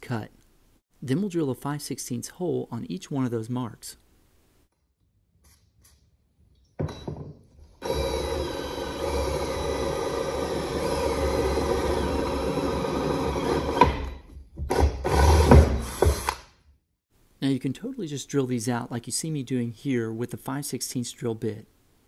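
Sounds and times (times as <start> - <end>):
cordless drill whining into steel: 7.8 - 14.1.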